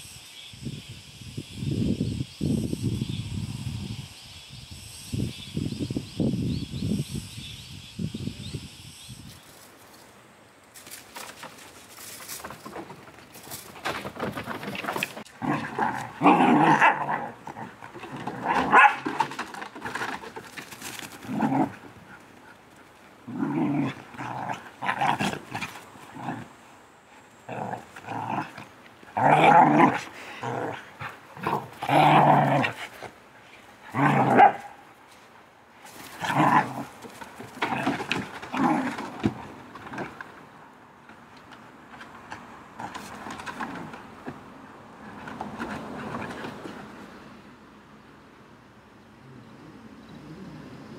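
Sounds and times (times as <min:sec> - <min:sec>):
dogs growling: 0:15.2 - 0:19.0, 0:21.2 - 0:22.2, 0:23.2 - 0:26.6, 0:27.4 - 0:33.1, 0:33.9 - 0:34.6, 0:49.2 - 0:50.9
dogs barking: 0:18.6 - 0:19.0.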